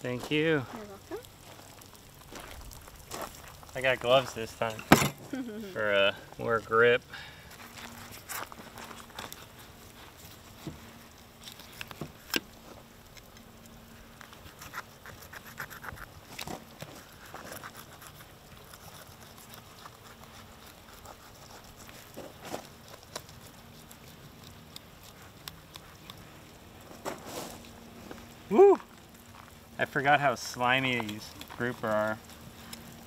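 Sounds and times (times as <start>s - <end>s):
knife scraping fish: 14.5s - 22.7s.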